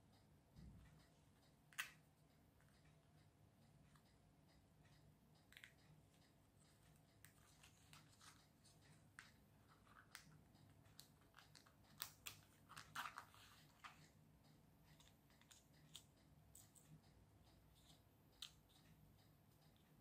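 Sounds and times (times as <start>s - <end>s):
plastic pieces clicking and scraping: 9.7s - 14.0s.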